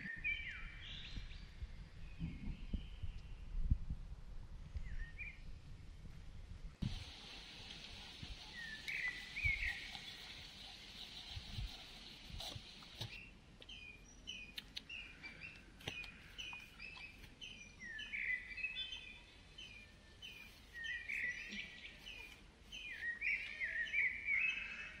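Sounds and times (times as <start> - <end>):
birds chirping: 6.8 - 25.0
louder longer bird calls: 7.0 - 25.0.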